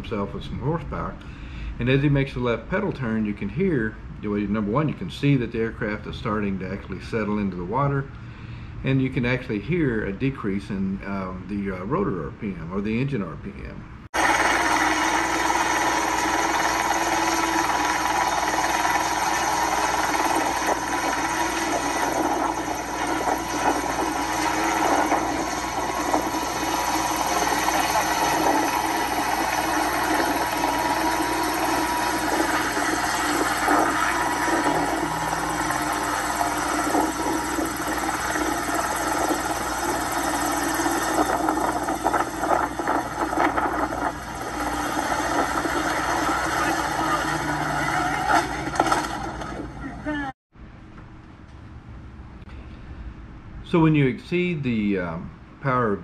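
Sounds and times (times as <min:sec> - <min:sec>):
helicopter engine and rotor: 0:14.2 - 0:49.7.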